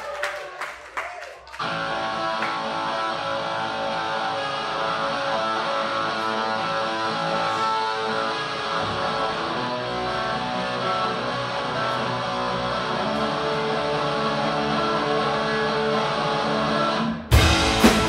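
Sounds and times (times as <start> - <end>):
bass: 1.6 - 18.0
strummed guitars: 1.6 - 18.0.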